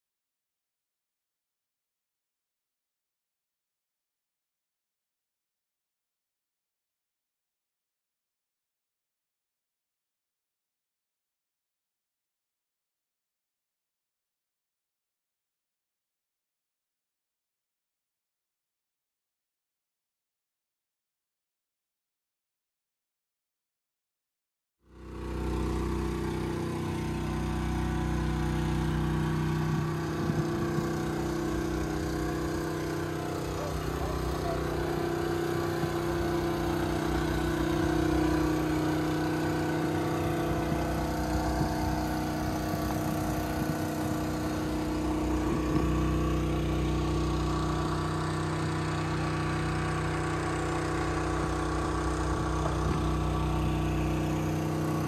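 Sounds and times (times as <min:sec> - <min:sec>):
diesel engine running steadily: 0:24.9 - 0:55.0.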